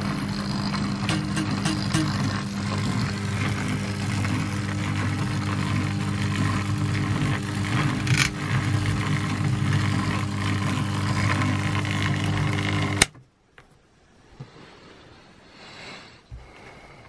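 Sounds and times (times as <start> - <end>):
electric motor humming: 0.0 - 13.1.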